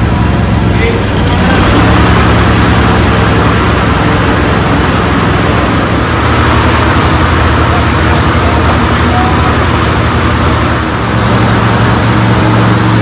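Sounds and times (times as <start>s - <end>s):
lawn tractor engine running: 0.0s - 13.0s.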